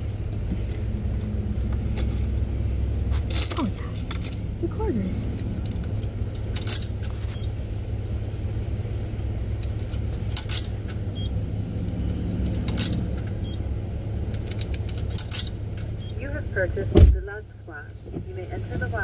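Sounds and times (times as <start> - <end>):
car engine idling: 0.0 - 19.0
metallic jingles and clicks: 1.8 - 7.5, 9.6 - 11.2, 11.8 - 13.5, 14.3 - 16.1.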